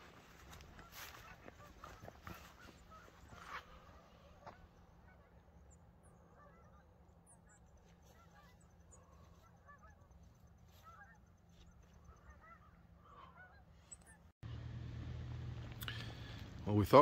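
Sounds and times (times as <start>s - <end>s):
distant geese honking: 0.0s - 17.0s
small birds chirping: 0.1s - 14.3s.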